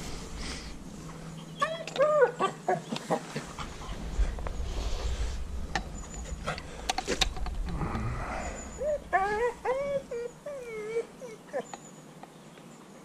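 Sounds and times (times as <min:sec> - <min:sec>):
dog whining: 0:01.6 - 0:02.9, 0:08.5 - 0:12.0.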